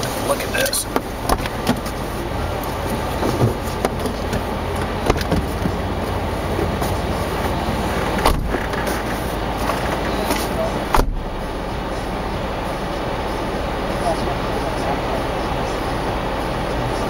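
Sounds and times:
engine low rumble: 0.0 - 17.0
sharp clicks and knocks: 2.6 - 5.8.

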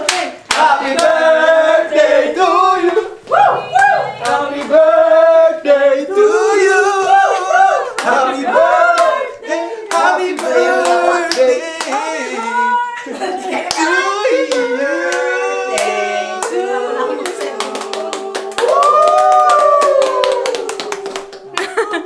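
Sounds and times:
hands clapping in rhythm: 0.0 - 1.2, 7.3 - 12.2, 13.6 - 16.6, 17.2 - 22.0
group singing: 0.0 - 19.0.

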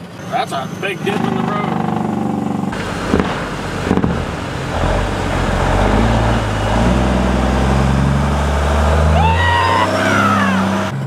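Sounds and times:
diesel truck engine: 0.0 - 11.0
water rushing: 0.8 - 10.9
sharp knocks: 2.7 - 4.9.

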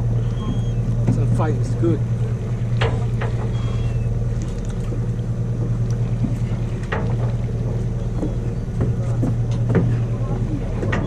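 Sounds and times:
boat engine humming: 0.0 - 11.0.

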